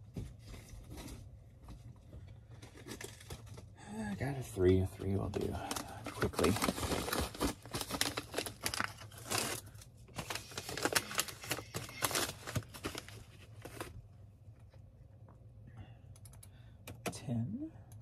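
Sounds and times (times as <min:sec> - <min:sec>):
faint steady hum: 0:00.0 - 0:18.0
packing material crinkling: 0:02.4 - 0:03.7, 0:05.1 - 0:14.0.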